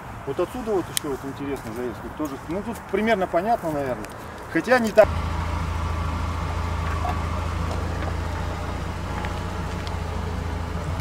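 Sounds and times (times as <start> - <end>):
engine running at low revs: 5.0 - 11.0.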